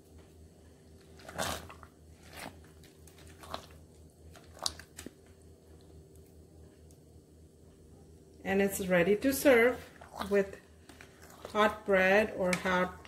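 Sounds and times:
spoon stirring thick mash: 0:09.7 - 0:13.0.

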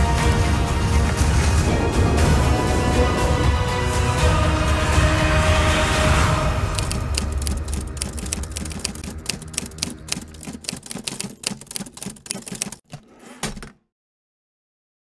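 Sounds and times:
music: 0:00.0 - 0:11.0
typewriter keys clacking: 0:06.7 - 0:13.6.

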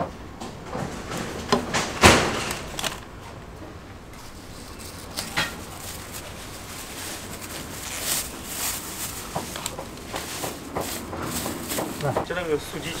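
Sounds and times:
steady background noise: 0:00.0 - 0:13.0
plastic bag crinkling: 0:02.1 - 0:03.1, 0:04.2 - 0:13.0.

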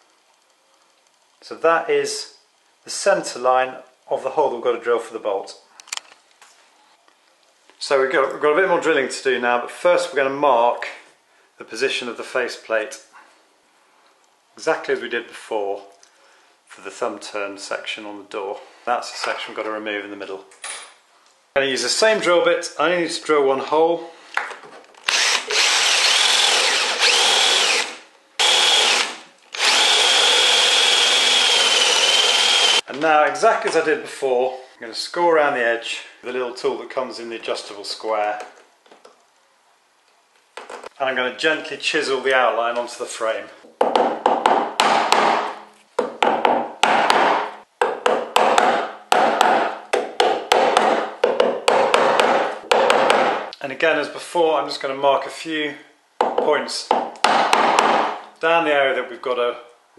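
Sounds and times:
electric drill boring into wood: 0:25.0 - 0:32.8
hammer tapping chisel: 0:56.2 - 0:58.1.

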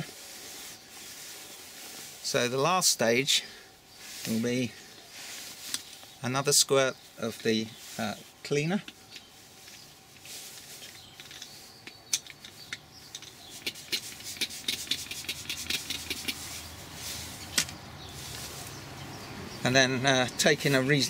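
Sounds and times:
pump bottle squirting: 0:12.2 - 0:16.5
scratchy strokes on leather: 0:13.5 - 0:18.9.

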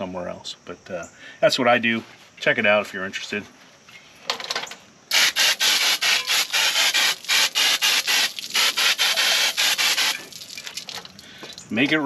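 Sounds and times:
compressed-air spray hissing: 0:05.1 - 0:10.4.

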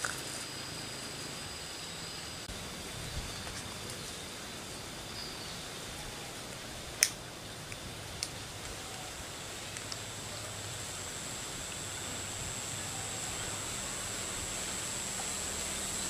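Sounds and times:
faint high steady tones: 0:00.0 - 0:16.0
steady stream hiss: 0:00.0 - 0:16.0
sharp click: 0:07.0 - 0:08.3.

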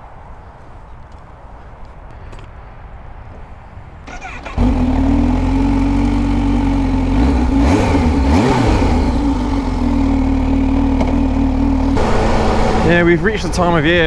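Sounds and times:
motorcycle engine idling: 0:04.1 - 0:08.3, 0:08.9 - 0:13.0
brief rising and falling sound: 0:12.0 - 0:13.2.

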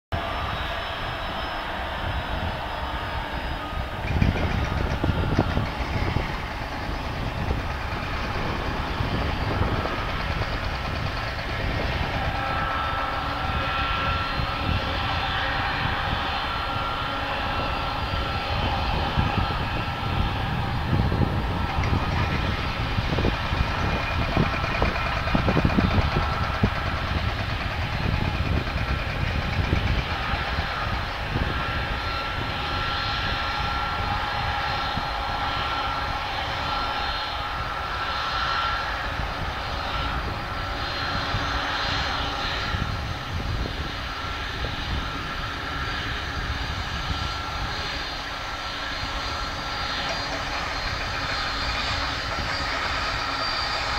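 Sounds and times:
jet engines whining: 0:00.1 - 0:53.9.

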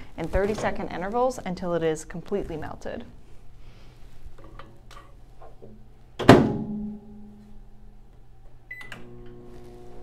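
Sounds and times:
microwave door slamming shut: 0:06.2 - 0:06.8
microwave humming: 0:08.2 - 0:10.0.

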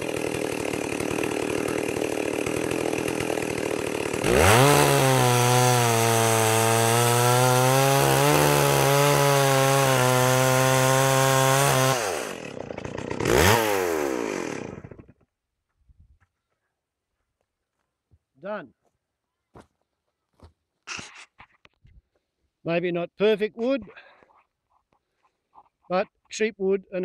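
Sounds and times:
chainsaw cutting log: 0:00.0 - 0:15.3.

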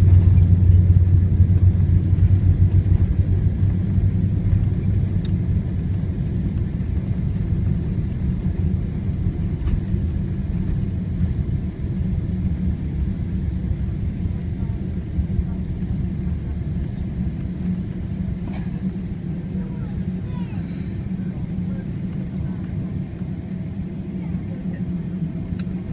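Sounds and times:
aircraft cabin rumble: 0:00.0 - 0:25.9.

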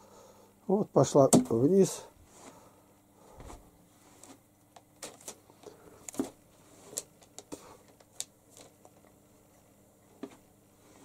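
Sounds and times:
faint steady hum: 0:00.0 - 0:11.0
paper rustling: 0:05.0 - 0:09.1.

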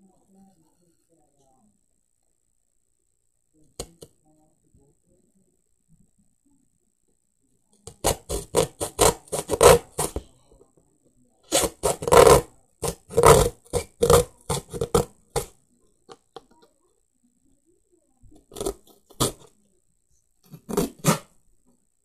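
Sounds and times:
knife sawing through cardboard: 0:07.9 - 0:10.2, 0:11.5 - 0:15.5, 0:18.5 - 0:19.4, 0:20.5 - 0:21.3.

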